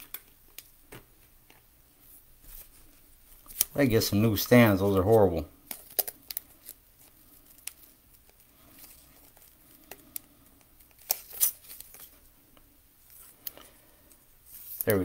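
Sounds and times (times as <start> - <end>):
cards flicking and rustling: 2.5 - 3.8, 5.6 - 15.0.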